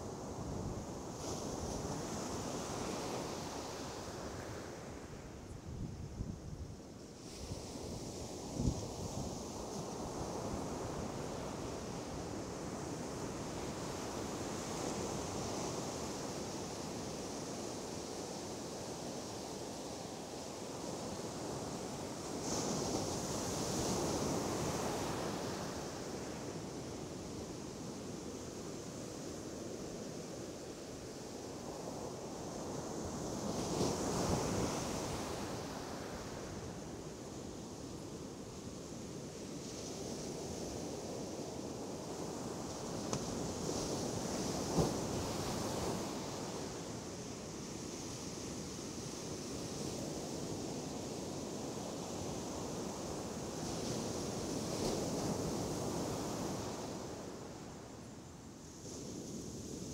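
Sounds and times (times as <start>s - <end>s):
wind noise on microphone: 0.0s - 16.7s
sea surf washing on shore: 6.3s - 59.9s.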